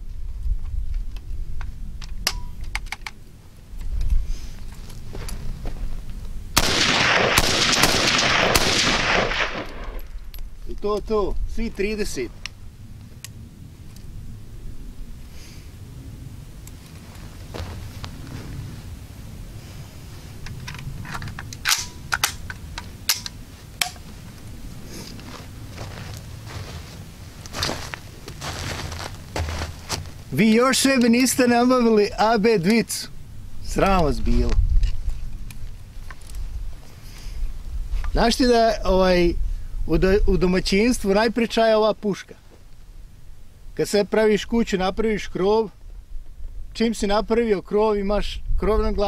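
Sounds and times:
rifle handling clicks: 0:02.0 - 0:03.2, 0:20.4 - 0:24.0
full-automatic gunfire burst: 0:06.6 - 0:10.0.

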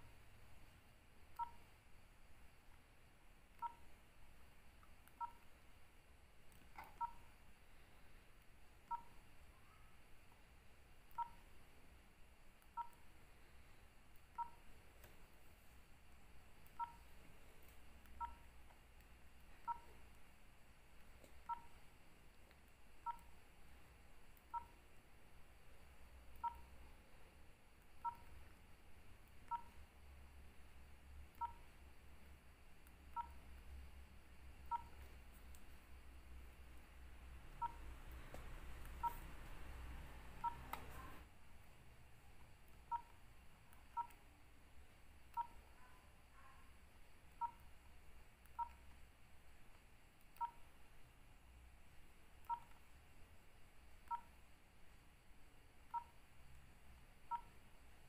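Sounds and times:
two-tone keypad beeps: 0:01.4 - 0:01.6, 0:03.6 - 0:03.9, 0:05.2 - 0:05.5, 0:06.8 - 0:07.3, 0:08.9 - 0:09.8, 0:11.1 - 0:11.4, 0:12.8 - 0:13.0, 0:14.4 - 0:14.6, 0:16.8 - 0:17.0, 0:18.2 - 0:18.4, 0:19.6 - 0:19.9, 0:21.5 - 0:21.7, 0:24.5 - 0:24.8, 0:26.4 - 0:26.7, 0:28.0 - 0:28.3, 0:29.5 - 0:29.8, 0:31.4 - 0:31.6, 0:34.6 - 0:35.0, 0:37.6 - 0:37.9, 0:39.0 - 0:39.2, 0:40.4 - 0:41.2, 0:42.9 - 0:43.1, 0:43.9 - 0:44.2, 0:45.3 - 0:45.6, 0:47.4 - 0:47.6, 0:48.6 - 0:48.8, 0:50.4 - 0:50.6, 0:52.4 - 0:52.7, 0:54.1 - 0:54.3, 0:55.9 - 0:56.1, 0:57.3 - 0:57.5.

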